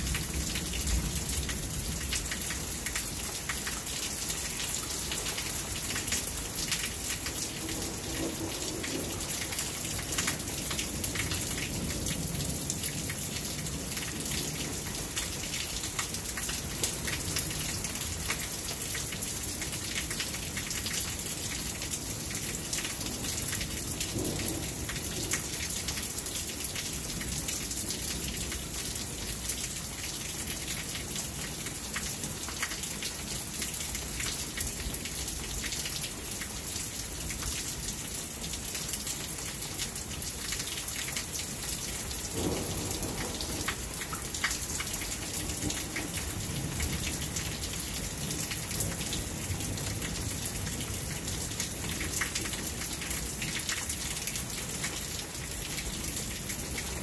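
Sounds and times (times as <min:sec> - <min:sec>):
steady rain falling: 0:00.0 - 0:57.0
thunder rumbling: 0:42.2 - 0:44.1.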